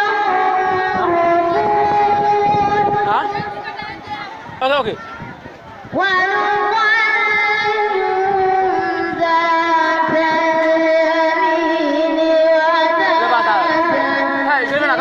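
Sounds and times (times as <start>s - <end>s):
boy chanting melodically: 0.0s - 4.4s, 5.9s - 15.0s.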